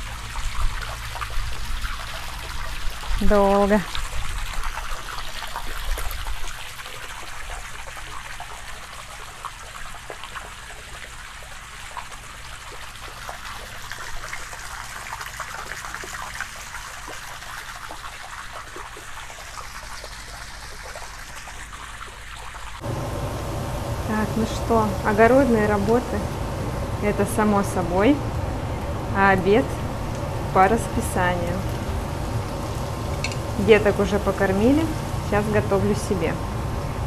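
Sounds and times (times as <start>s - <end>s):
hose water splashing into pool: 0.0s - 22.9s.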